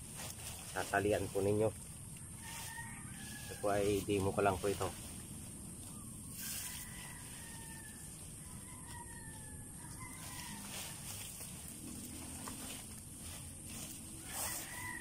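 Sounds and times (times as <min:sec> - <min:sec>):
dry leaves rustling: 0:00.0 - 0:15.0
rooster crowing: 0:02.2 - 0:04.9, 0:05.9 - 0:12.6, 0:13.8 - 0:15.0.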